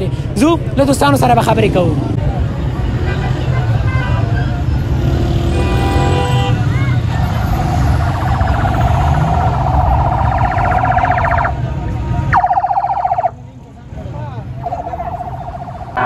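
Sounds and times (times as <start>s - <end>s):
traffic rumble: 0.0s - 16.0s
pulsing electronic siren: 7.1s - 11.6s, 12.3s - 13.4s, 14.6s - 16.0s.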